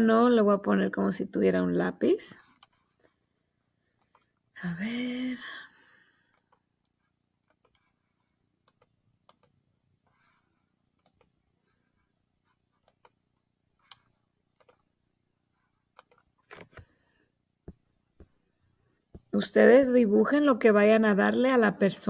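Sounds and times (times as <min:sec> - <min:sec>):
faint sharp computer clicks: 0:04.0 - 0:04.3, 0:07.5 - 0:07.8, 0:16.0 - 0:16.2.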